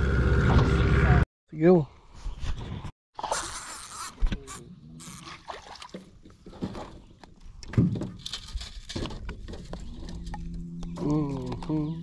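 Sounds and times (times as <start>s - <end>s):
low hum: 9.5s - 12.0s.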